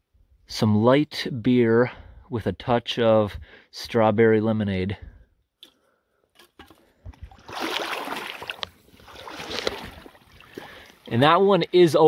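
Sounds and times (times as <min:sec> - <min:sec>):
water splashing from wading: 0:07.1 - 0:11.2.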